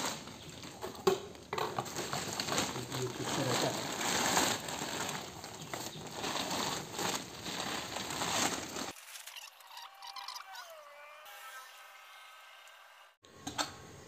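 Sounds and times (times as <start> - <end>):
compost pattering down: 0.0 - 9.0
plastic sack crinkling: 0.0 - 9.5.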